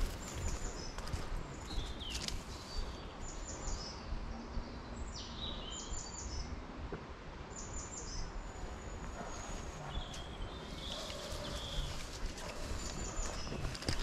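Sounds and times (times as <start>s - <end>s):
footsteps on dry leaves: 0.0s - 3.0s, 9.4s - 14.0s
songbird singing: 0.0s - 6.7s, 7.4s - 14.0s.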